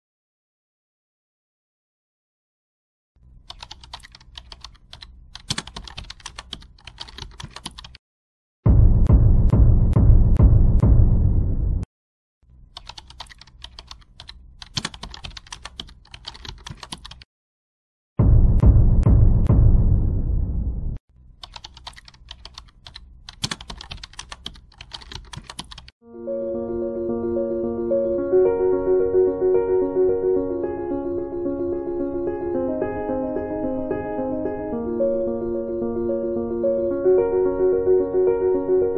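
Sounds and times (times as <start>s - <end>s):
keyboard typing: 3.4s - 8.0s, 12.8s - 17.3s, 21.4s - 25.9s
loud low rumble: 8.7s - 11.8s, 18.2s - 21.0s
soft piano music: 26.0s - 38.9s.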